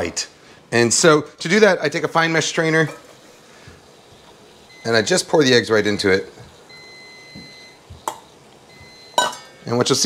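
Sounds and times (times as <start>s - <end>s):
faint high beep-like tone: 4.7s - 5.3s, 6.7s - 7.9s, 8.7s - 9.8s
metal bowl clacking on stone: 9.2s - 9.5s.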